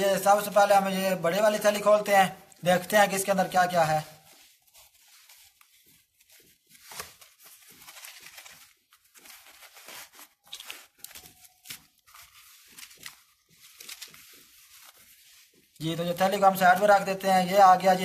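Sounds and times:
pouch rustling: 4.1s - 15.8s.

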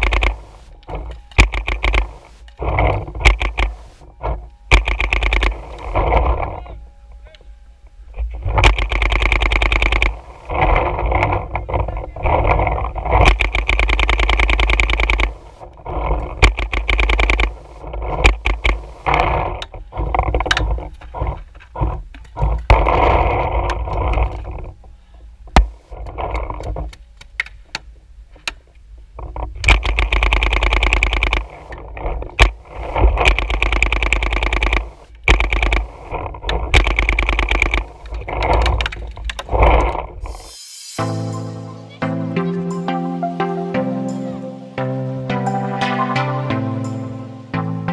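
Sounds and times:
paintball marker firing: 1.3s - 2.3s, 4.7s - 5.9s, 8.6s - 10.2s, 13.2s - 15.5s, 16.4s - 17.6s, 33.3s - 36.0s.

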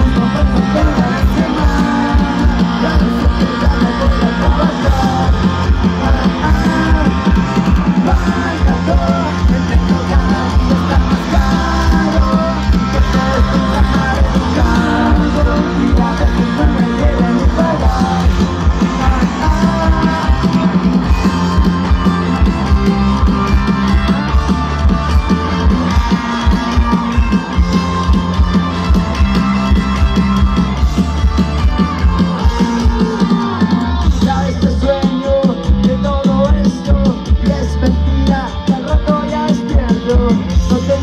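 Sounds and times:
lead vocal singing: 0.0s - 21.1s
live rock band playing: 0.0s - 41.0s.

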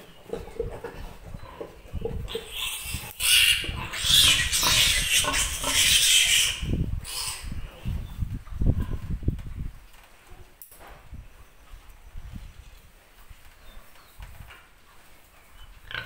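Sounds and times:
piglet squealing: 2.3s - 7.5s.

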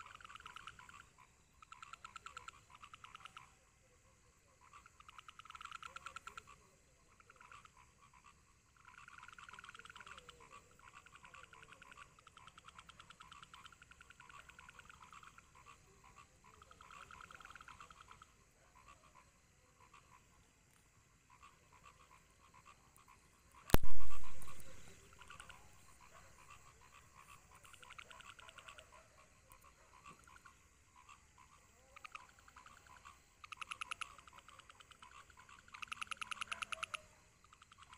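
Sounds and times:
frogs croaking: 0.0s - 37.9s
loud thump with low rumble: 23.8s - 24.9s.

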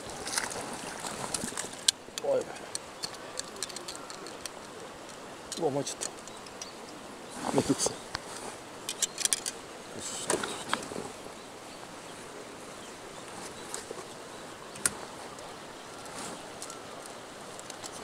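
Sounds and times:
outdoor background noise: 0.0s - 18.0s
light sharp clicks and taps: 16.6s - 18.0s.

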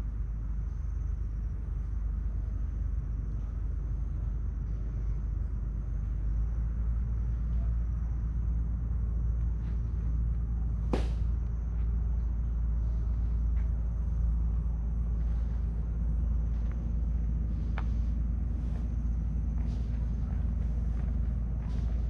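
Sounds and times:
faint high-pitched hum: 0.0s - 22.0s
low rumble: 0.0s - 22.0s
sharp snap: 10.9s - 11.3s.

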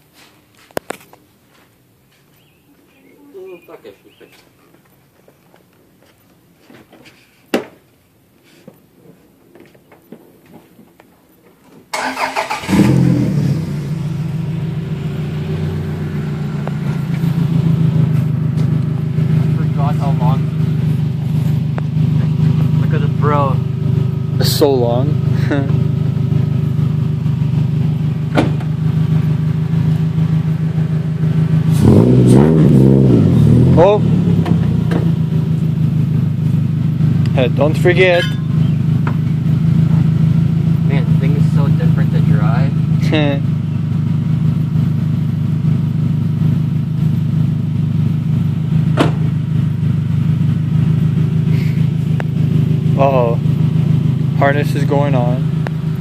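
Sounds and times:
car engine idling: 12.0s - 56.0s.

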